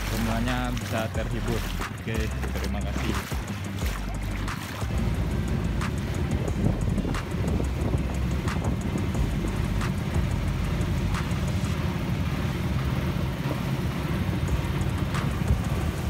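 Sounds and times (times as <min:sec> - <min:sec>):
wind buffeting microphone: 0:00.0 - 0:12.3
boat engine running: 0:00.0 - 0:16.0
water rushing past hull: 0:00.0 - 0:16.0.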